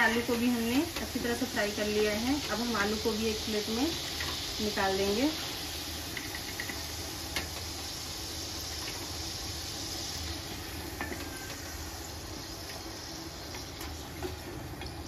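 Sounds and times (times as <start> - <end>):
potatoes sizzling in hot oil: 0.0 - 15.0.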